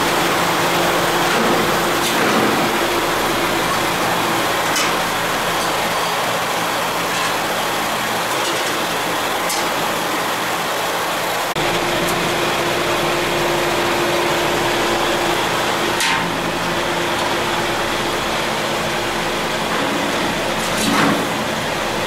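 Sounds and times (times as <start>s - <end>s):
electric fans rushing: 0.0s - 22.0s.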